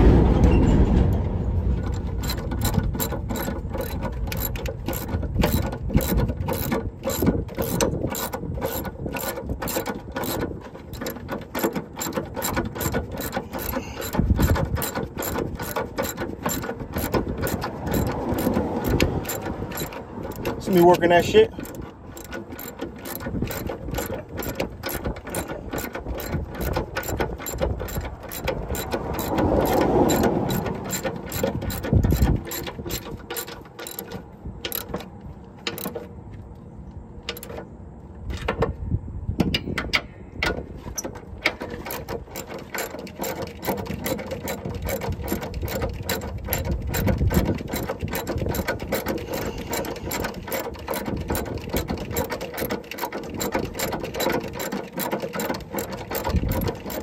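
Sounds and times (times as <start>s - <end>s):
low thud: 0.0s - 2.6s
ratchet wrench clicking: 1.9s - 36.1s, 37.2s - 37.6s, 41.4s - 57.0s.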